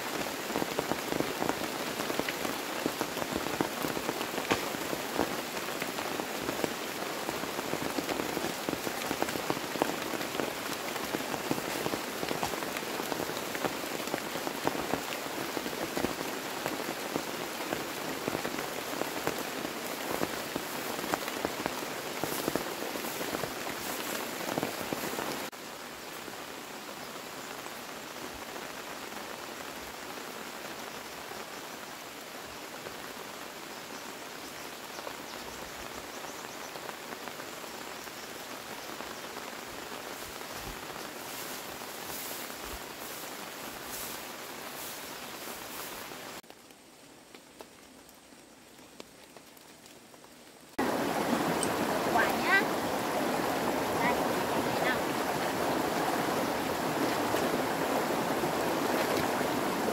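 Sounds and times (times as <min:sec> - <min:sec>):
rain falling: 0:00.0 - 0:59.9
even hiss: 0:36.1 - 0:46.4.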